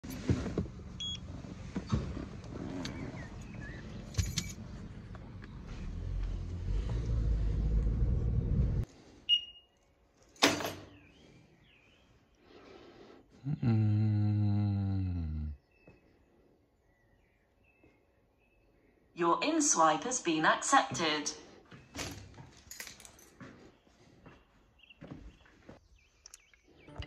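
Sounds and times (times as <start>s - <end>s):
car engine and road noise: 0.0s - 8.9s.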